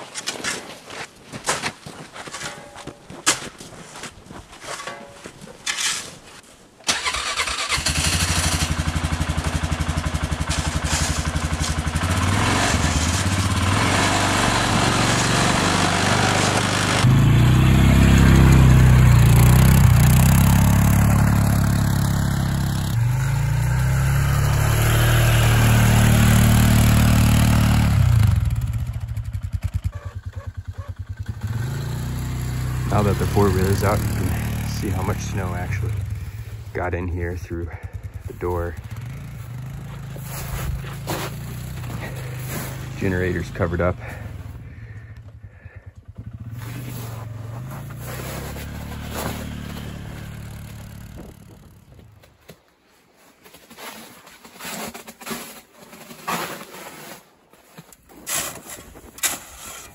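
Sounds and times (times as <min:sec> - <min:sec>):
snow shovel scraping: 0:00.0 - 0:07.1, 0:10.4 - 0:17.2, 0:32.9 - 0:36.7, 0:38.2 - 0:44.6, 0:46.4 - 0:51.6, 0:53.2 - 0:59.9
atv engine running: 0:07.0 - 0:52.2.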